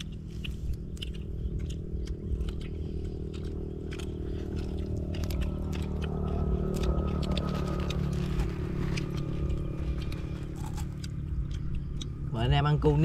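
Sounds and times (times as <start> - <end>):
chewing: 0.0 - 12.6
steady low hum: 0.0 - 13.0
food packets crinkling: 3.7 - 11.0.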